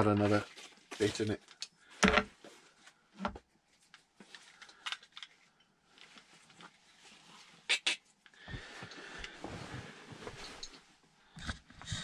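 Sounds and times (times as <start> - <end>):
fabric rustle: 8.6 - 11.0.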